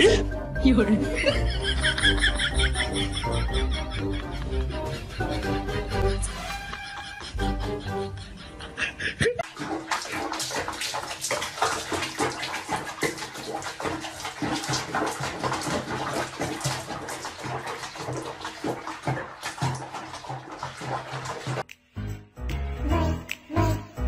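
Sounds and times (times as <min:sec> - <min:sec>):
water splashing in bathtub: 0:09.4 - 0:21.7.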